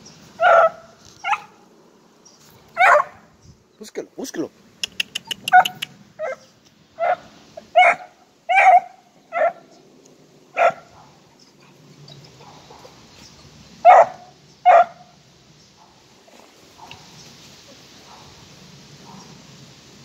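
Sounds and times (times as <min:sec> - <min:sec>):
puppy yipping: 0:00.4 - 0:01.5, 0:02.8 - 0:03.2, 0:04.9 - 0:07.2.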